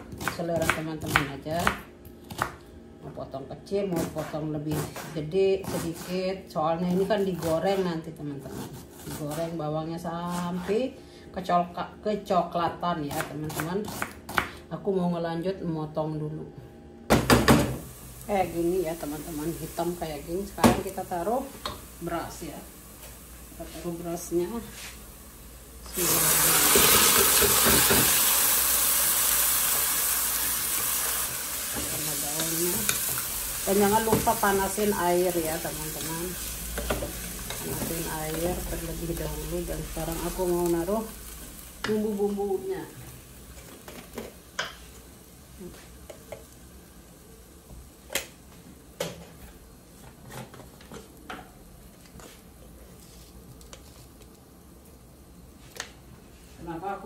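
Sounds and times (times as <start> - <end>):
rice sizzling in hot oil: 17.6 - 48.4.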